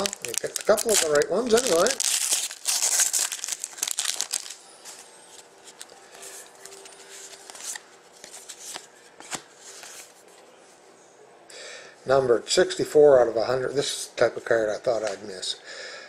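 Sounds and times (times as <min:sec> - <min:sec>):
plastic wrapper crinkling and tearing: 0:00.0 - 0:06.0.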